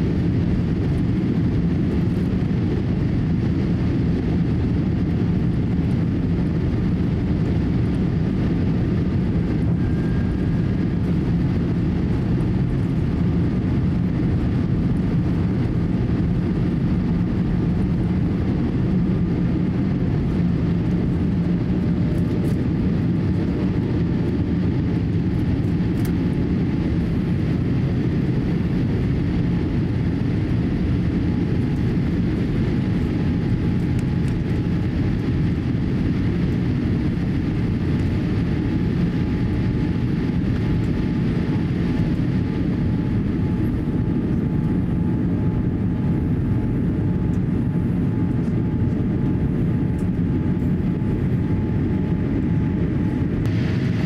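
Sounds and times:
jet engines roaring: 0:00.0 - 0:54.0
rushing air: 0:53.4 - 0:54.0.

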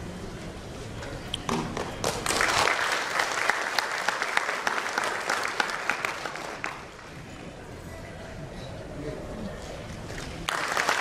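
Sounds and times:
audience applauding: 0:02.0 - 0:07.1, 0:10.5 - 0:11.0.

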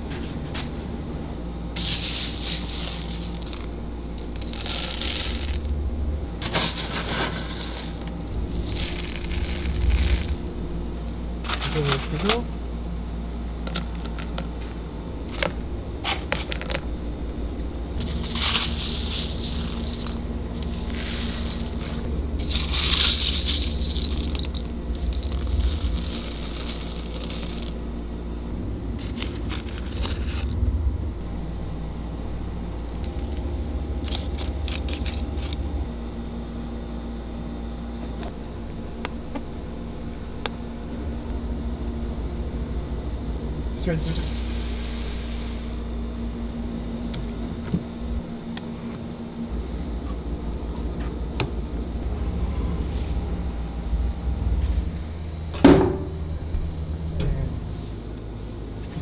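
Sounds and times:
low machine hum: 0:00.0 - 0:59.0
pellets and metal parts clattering: 0:01.8 - 0:05.8, 0:06.4 - 0:10.5, 0:13.7 - 0:17.0, 0:18.0 - 0:27.9, 0:33.0 - 0:35.6.

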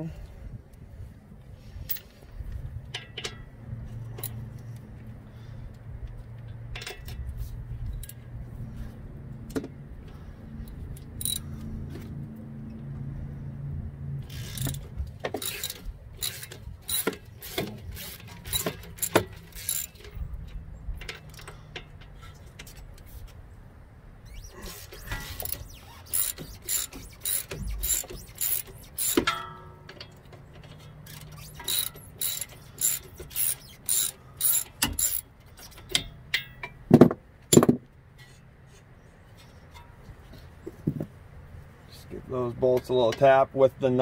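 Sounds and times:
steady low hum: 0:00.0 - 0:30.2
wrenches clinking on bolts: 0:06.4 - 0:08.2, 0:14.2 - 0:23.0, 0:24.3 - 0:38.3.

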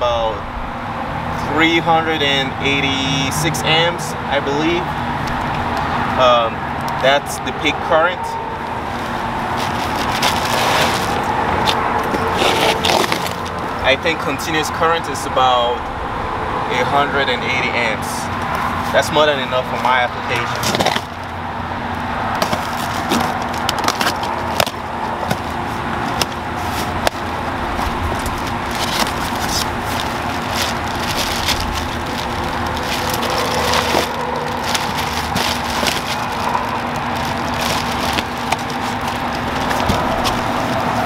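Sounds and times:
plastic bag crinkling: 0:08.8 - 0:11.3, 0:12.2 - 0:13.8, 0:22.4 - 0:41.0
knife slicing packing tape: 0:09.5 - 0:13.5
cardboard flaps handled: 0:27.8 - 0:41.0.

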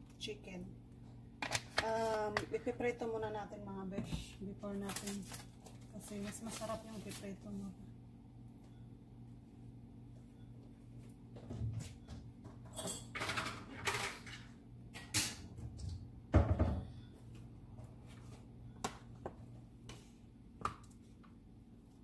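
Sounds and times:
thump on counter: 0:16.3 - 0:16.8.

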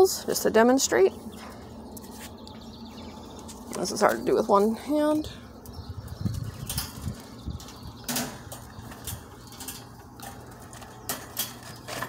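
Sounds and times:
wire cage clicking and rattling: 0:06.2 - 0:12.0.

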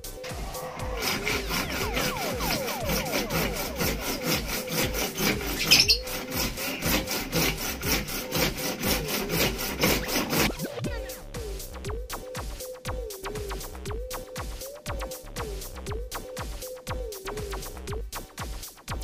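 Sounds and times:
hacksaw cutting plastic pipe: 0:00.9 - 0:10.7.

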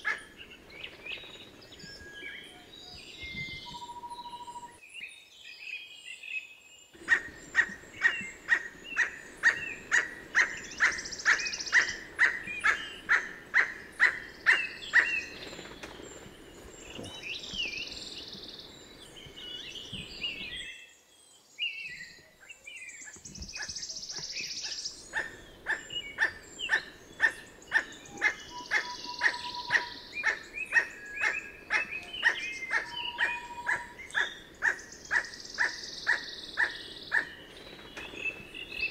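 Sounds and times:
bird croaking calls: 0:07.0 - 0:15.8, 0:23.5 - 0:38.9.

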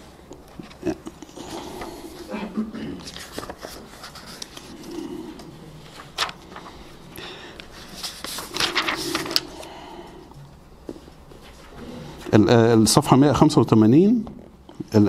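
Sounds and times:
paper pages turning: 0:03.0 - 0:09.7.

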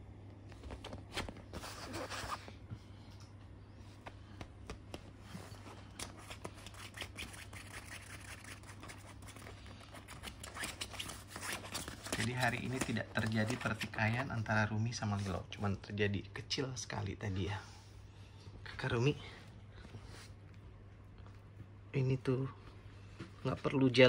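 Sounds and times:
claws scratching and clicking: 0:05.8 - 0:14.3.

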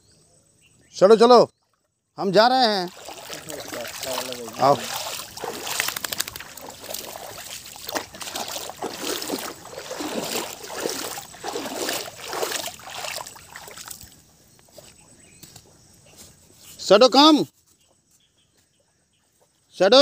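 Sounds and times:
water splashing in stream: 0:01.6 - 0:14.3.

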